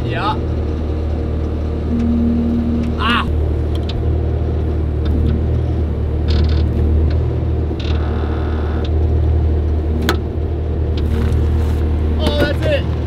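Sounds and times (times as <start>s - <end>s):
skid steer engine humming: 0.5s - 12.2s
short high-pitched noises: 1.9s - 3.6s.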